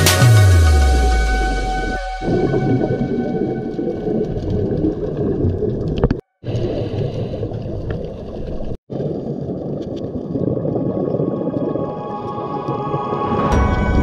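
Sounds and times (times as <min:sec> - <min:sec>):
muffled underwater rumble: 0:01.3 - 0:13.7.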